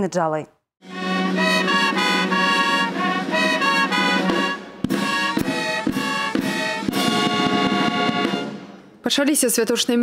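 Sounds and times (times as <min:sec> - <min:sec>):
military brass band playing: 0:00.8 - 0:08.9
drums striking steady beat: 0:00.9 - 0:08.8.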